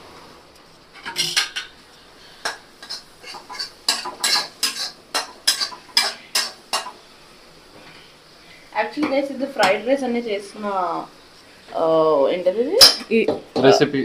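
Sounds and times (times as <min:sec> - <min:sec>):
metal spatula scraping a pan: 0:02.3 - 0:07.0.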